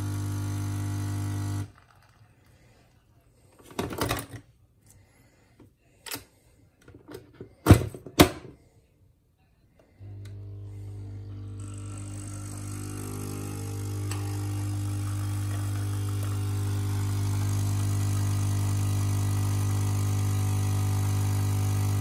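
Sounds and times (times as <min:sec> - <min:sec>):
coffee brewing hiss: 0:00.0 - 0:02.2, 0:10.1 - 0:22.0
coffee machine pump humming: 0:00.0 - 0:02.2, 0:10.0 - 0:22.0.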